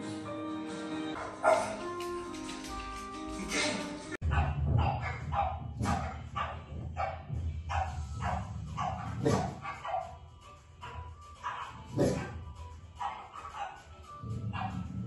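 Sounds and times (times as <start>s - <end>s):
dog barking: 1.2s - 1.9s, 4.2s - 10.2s, 10.8s - 12.4s, 13.0s - 15.0s
low rumble: 4.2s - 9.6s.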